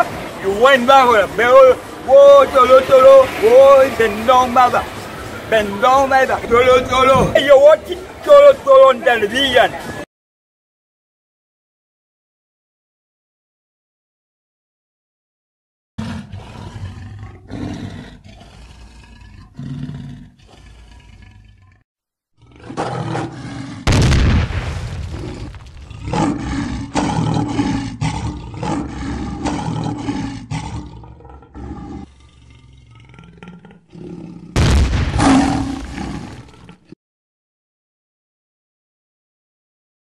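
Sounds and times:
lion roar: 0:05.7 - 0:07.4, 0:16.0 - 0:21.8, 0:22.4 - 0:24.0, 0:25.1 - 0:37.0.

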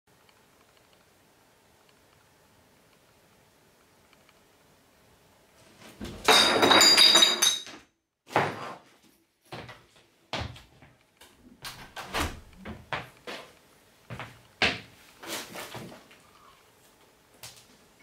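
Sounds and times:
door opening with squeaky rattle: 0:11.7 - 0:12.6.

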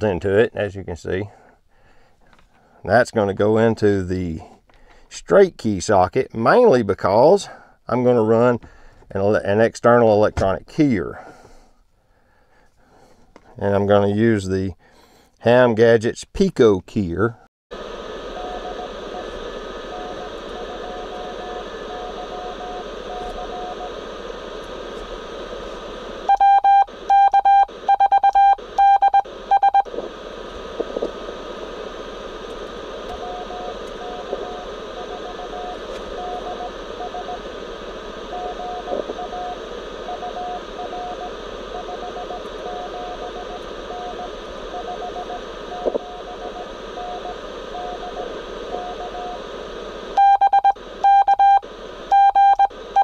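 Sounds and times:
faint morse code signal: 0:17.8 - 0:53.0
radio band noise hiss: 0:17.8 - 0:53.0
loud morse sidetone beeps: 0:18.3 - 0:24.0, 0:26.2 - 0:29.9, 0:33.1 - 0:37.5, 0:38.2 - 0:49.4, 0:50.2 - 0:53.0.

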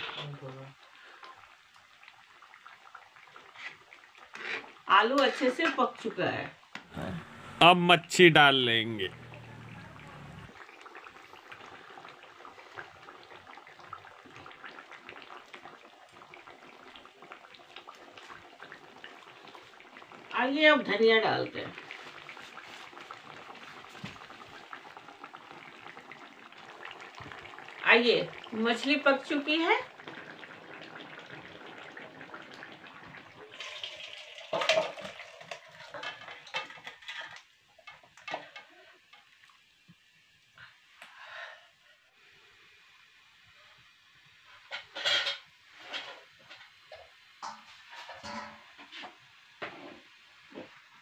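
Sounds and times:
curry gravy bubbling: 0:00.0 - 0:07.6, 0:09.1 - 0:39.8.

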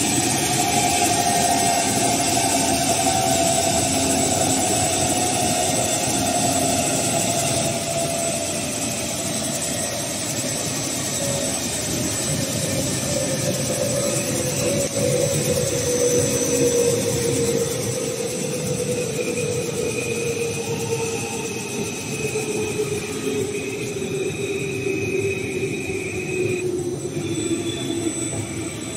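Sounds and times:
machine whine: 0:00.0 - 0:28.9.

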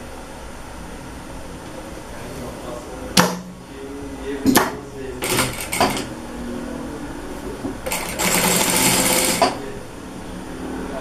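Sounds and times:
sewing machine stitching: 0:05.2 - 0:06.1, 0:07.9 - 0:09.6.

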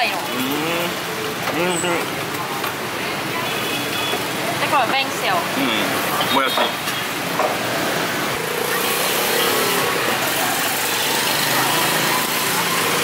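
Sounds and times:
street traffic noise: 0:00.0 - 0:13.0
passing vehicle engines: 0:04.2 - 0:13.0.

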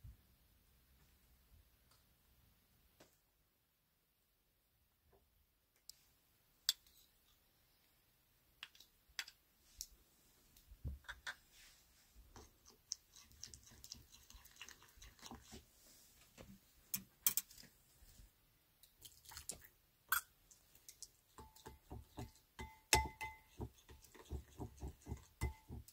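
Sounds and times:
metal spoon stirring in ceramic bowl: 0:12.4 - 0:15.6, 0:21.3 - 0:25.9.

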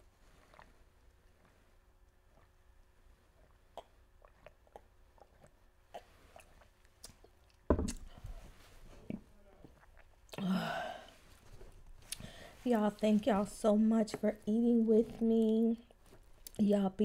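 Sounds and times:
gulping water: 0:00.2 - 0:07.4
wet swallowing clicks: 0:03.4 - 0:08.1.

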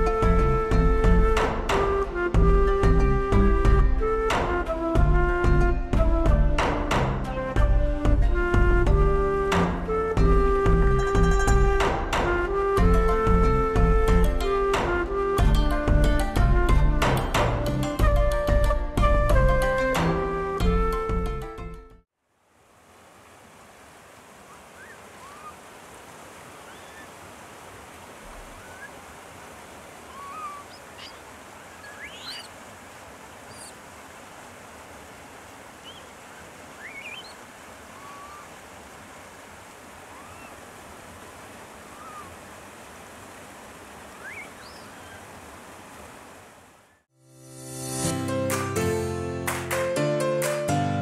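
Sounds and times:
flowing water: 0:00.0 - 0:21.2, 0:22.1 - 0:47.1
short high chirping calls: 0:30.1 - 0:31.2, 0:31.8 - 0:32.5, 0:36.8 - 0:37.4, 0:44.2 - 0:45.2.

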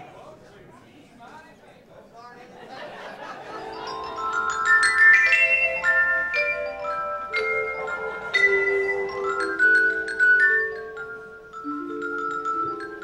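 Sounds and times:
mallet percussion music: 0:03.5 - 0:13.0.

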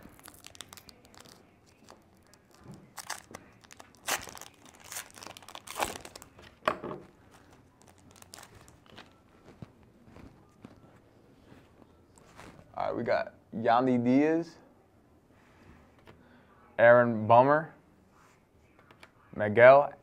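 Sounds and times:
card pack wrapper crinkling and tearing: 0:00.0 - 0:06.6, 0:07.3 - 0:09.6.

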